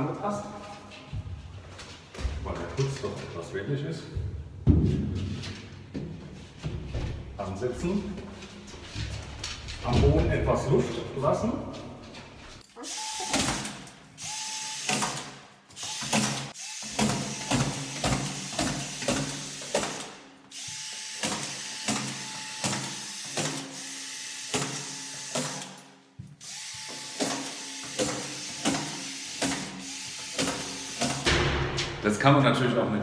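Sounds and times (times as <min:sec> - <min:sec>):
screw gun whining: 0:12.8 - 0:25.8, 0:26.4 - 0:31.3.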